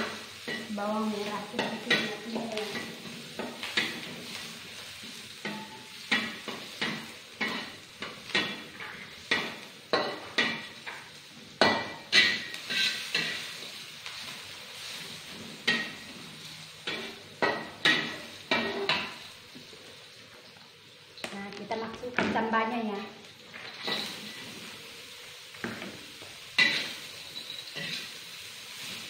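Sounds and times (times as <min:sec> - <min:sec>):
food sizzling in oil: 0:00.0 - 0:29.0
metal spatula scraping a wok: 0:12.0 - 0:16.2, 0:23.6 - 0:24.8, 0:26.5 - 0:29.0.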